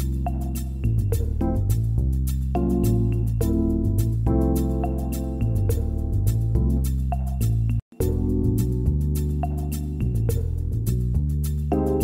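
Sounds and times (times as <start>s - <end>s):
soft instrumental music with beat: 0.0s - 12.0s.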